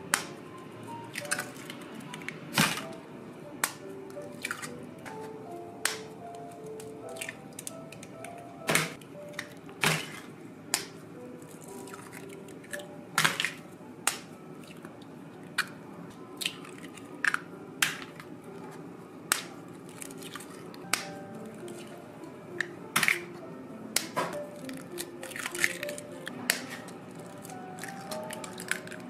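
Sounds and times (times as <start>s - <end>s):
eggshells cracking: 16.4s - 18.3s, 19.3s - 22.0s, 24.0s - 29.0s.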